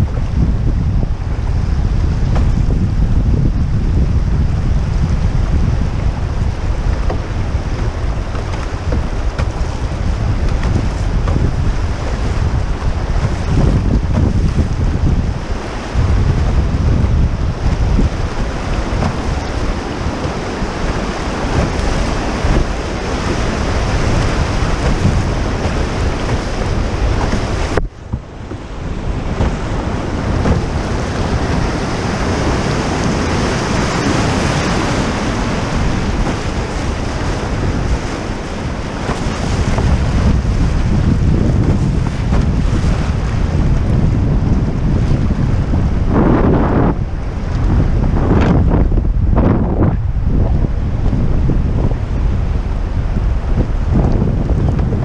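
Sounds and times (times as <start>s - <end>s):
wind buffeting microphone: 0.0s - 55.0s
river water rushing over rapids: 5.0s - 43.6s.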